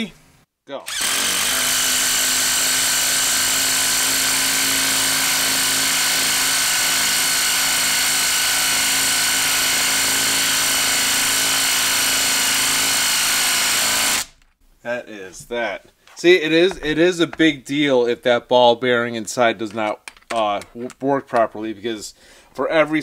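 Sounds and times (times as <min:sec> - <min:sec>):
impact wrench hammering: 0:00.9 - 0:14.5.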